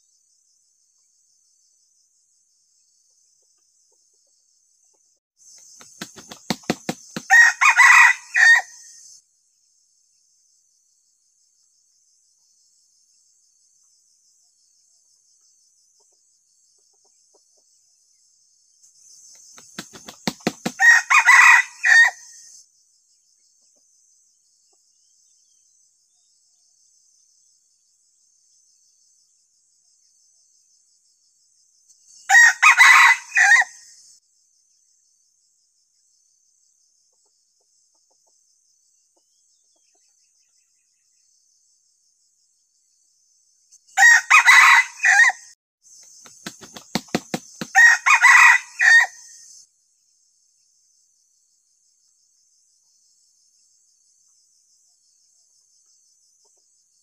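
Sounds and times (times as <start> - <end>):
faint insects buzzing: 0.0 - 57.0
wings flapping: 5.8 - 7.3, 19.6 - 21.0, 46.2 - 47.8
rooster crowing: 7.2 - 8.9, 19.9 - 22.4, 32.3 - 33.8, 44.0 - 45.5, 46.6 - 49.3.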